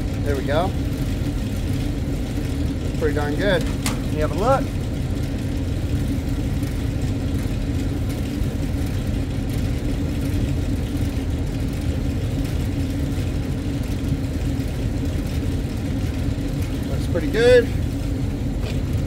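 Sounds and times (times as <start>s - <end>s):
hvac equipment droning: 0.0s - 19.0s.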